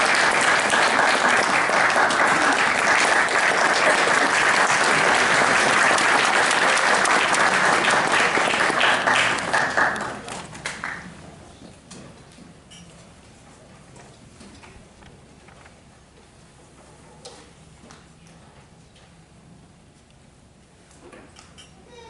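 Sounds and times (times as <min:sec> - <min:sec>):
audience clapping: 0:00.0 - 0:11.2.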